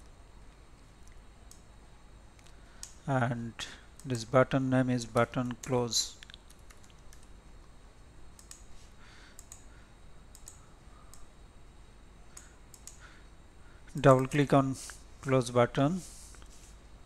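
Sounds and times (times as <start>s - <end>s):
computer keyboard clicks: 5.2s - 7.3s, 8.4s - 8.6s, 9.4s - 9.7s, 10.3s - 11.2s, 12.4s - 13.0s
computer mouse clicks: 5.2s - 7.7s, 8.4s - 8.7s, 9.3s - 9.7s, 10.3s - 11.3s, 12.3s - 13.0s.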